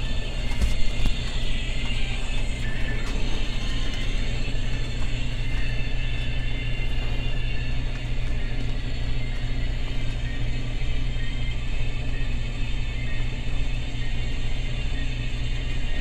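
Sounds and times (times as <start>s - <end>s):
furnace rumble and hum: 0.0s - 16.0s.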